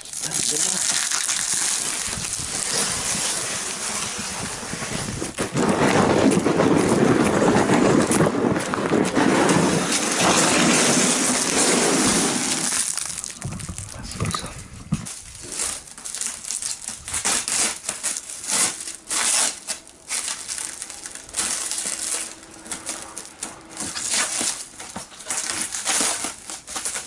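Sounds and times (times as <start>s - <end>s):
plastic film crinkling: 0.0s - 27.0s
cardboard box scraping: 1.9s - 12.9s, 17.1s - 27.0s.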